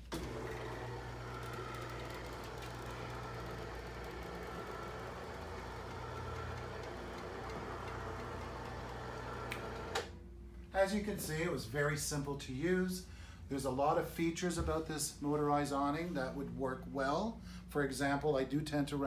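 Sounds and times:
awning motor humming: 0.1 - 10.1.

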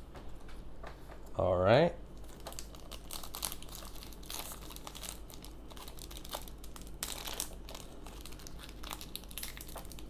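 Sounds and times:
foil wrapper crinkling: 2.2 - 10.0.

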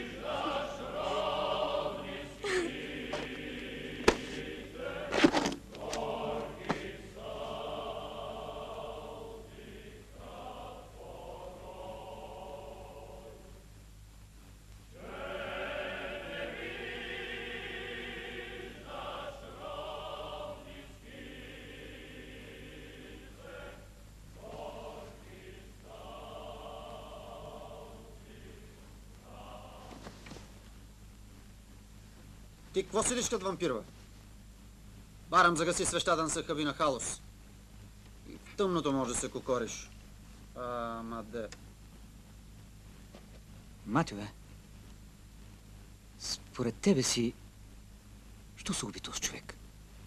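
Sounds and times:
choir singing held notes: 0.0 - 13.6, 14.9 - 30.4.

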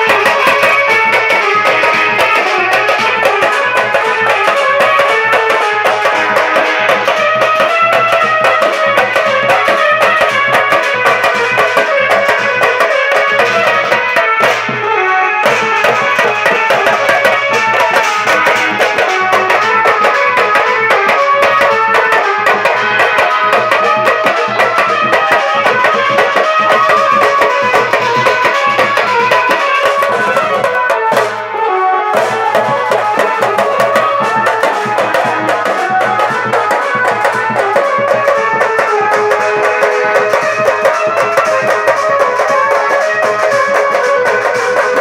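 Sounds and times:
frame drums and dhol beating: 0.0 - 45.0.

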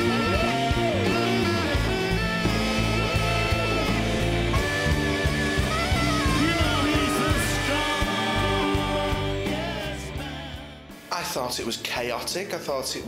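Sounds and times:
live band playing: 0.0 - 11.1
man singing: 5.9 - 11.0.

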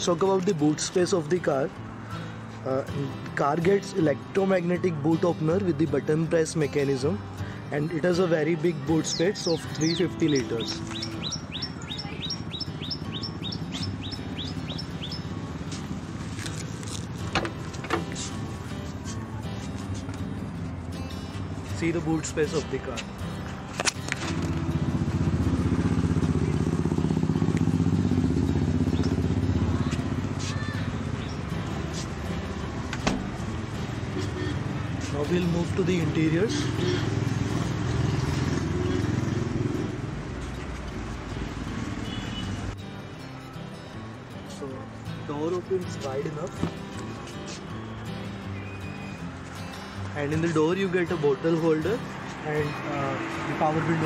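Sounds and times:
bird chirping: 9.0 - 15.4, 48.4 - 49.2
vehicle engine humming: 9.5 - 45.3, 46.0 - 54.0.

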